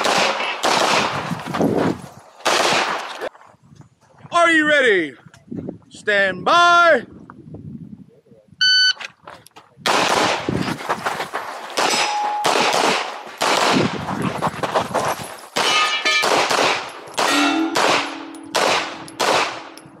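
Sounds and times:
pistol shots: 0.0 - 1.2, 2.4 - 3.1, 9.9 - 10.5, 11.8 - 14.0, 15.6 - 19.8
steel targets ringing: 11.8 - 12.7, 15.6 - 16.3, 17.2 - 20.0.

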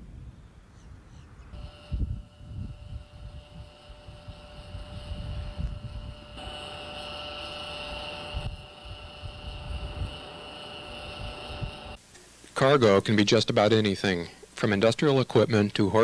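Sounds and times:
wind buffeting microphone: 0.0 - 6.8, 7.7 - 12.0
high aircraft whine: 1.5 - 12.0.

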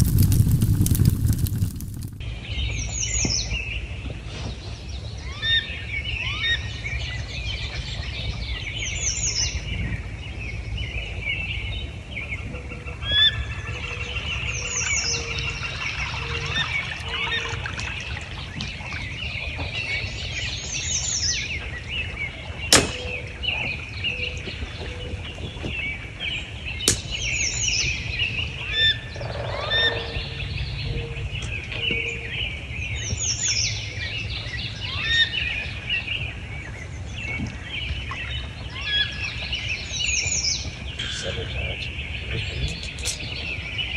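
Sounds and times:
steady low rumble: 0.0 - 2.6
songbirds singing: 0.0 - 43.9.

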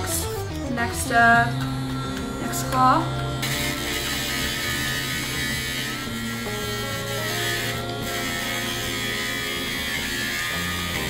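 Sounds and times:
nail grinder grinding claw: 2.6 - 11.0.

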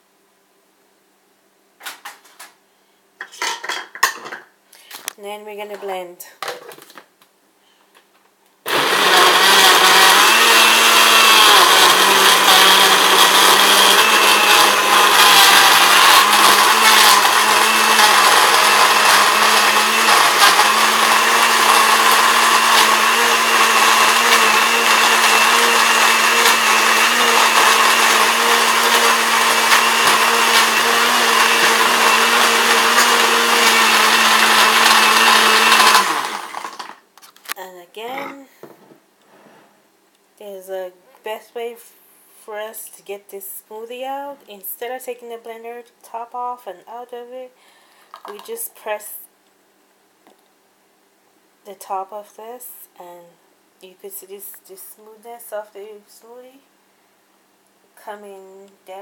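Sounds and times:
blender motor running: 8.7 - 37.0.

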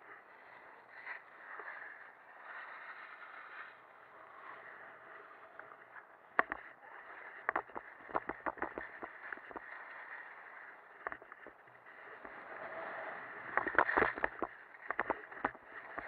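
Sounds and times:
sharp clacks and knocks: 6.4 - 6.7, 7.4 - 9.8, 11.0 - 12.4, 13.5 - 16.0.

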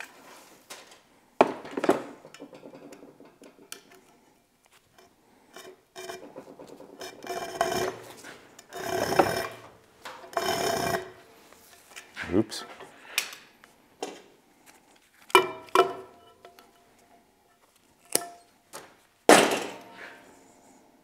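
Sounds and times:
cord insulation rasping against steel: 5.5 - 11.2.

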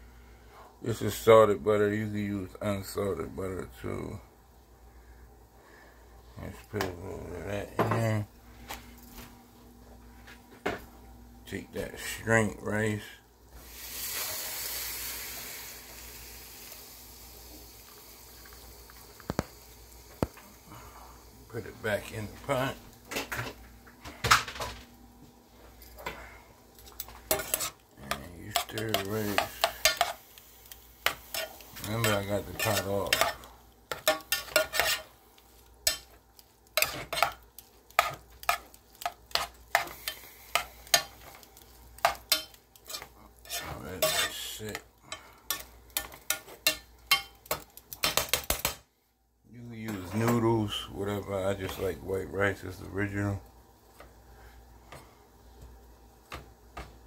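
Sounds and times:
rice sizzling in butter: 11.4 - 23.9, 25.4 - 48.9
metal spoon scraping a pot: 26.9 - 30.2, 31.0 - 35.1, 36.8 - 37.4, 42.0 - 44.5.

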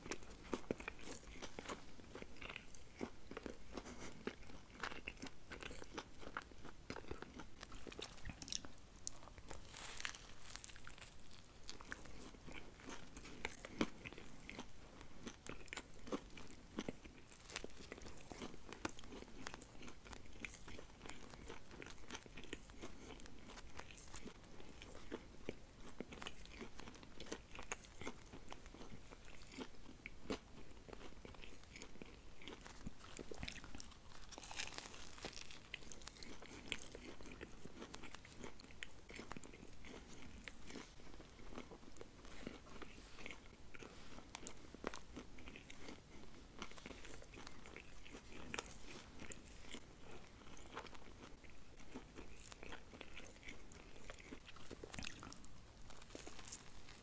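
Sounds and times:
person chewing crunchy food: 0.0 - 57.0.

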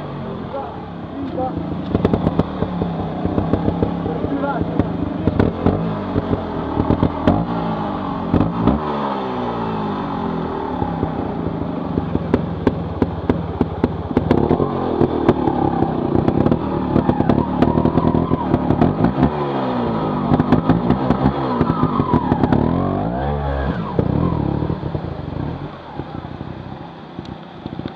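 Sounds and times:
motorcycle engine revving: 0.0 - 27.9
sharp knocks and clatter: 1.8 - 7.6.

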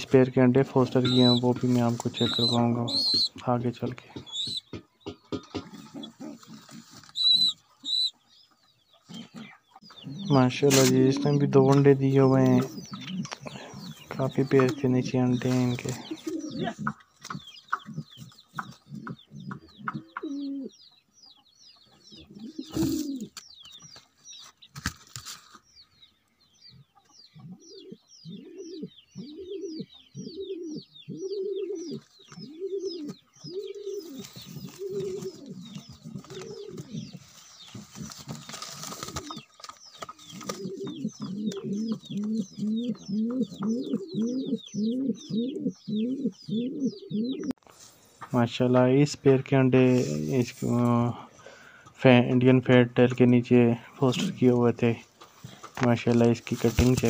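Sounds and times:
birds chirping: 0.0 - 57.0
pigeons cooing: 0.7 - 8.3, 12.4 - 20.9, 21.9 - 23.4, 26.8 - 47.6.

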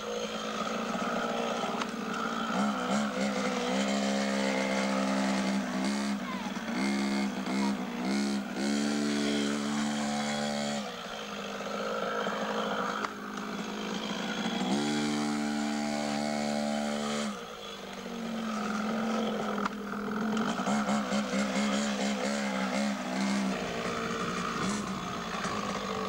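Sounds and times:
motorcycle engine revving: 0.0 - 26.0.

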